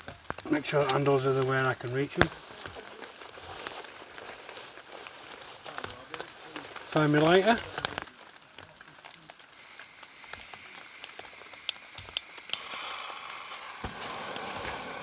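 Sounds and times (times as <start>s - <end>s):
gas burner rushing hiss: 9.5s - 15.0s
gas hiss: 9.5s - 15.0s
lighter clicks: 11.0s - 13.8s.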